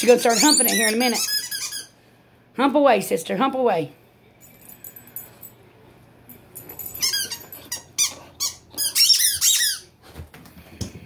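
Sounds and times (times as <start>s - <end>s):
dog toy squeaking: 0.0s - 1.9s, 6.9s - 9.9s.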